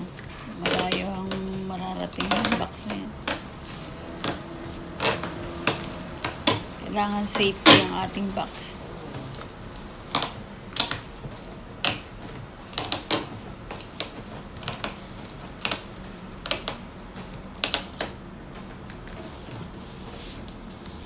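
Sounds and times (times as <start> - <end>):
packing tape rasping off dispenser: 2.0 - 6.7.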